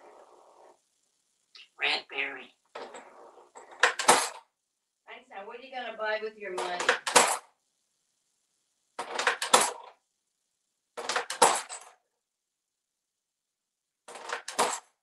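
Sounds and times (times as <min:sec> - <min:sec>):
coins clattering on countertop: 0:02.7 - 0:04.4, 0:06.7 - 0:07.5, 0:09.0 - 0:09.9, 0:11.0 - 0:12.0, 0:14.1 - 0:15.0.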